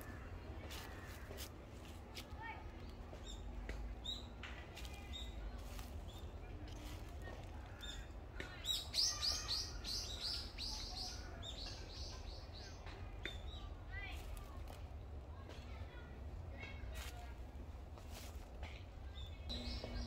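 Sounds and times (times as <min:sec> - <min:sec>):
small birds chirping: 0:00.0 - 0:14.8, 0:19.1 - 0:20.0
steady low rumble: 0:19.4 - 0:20.0.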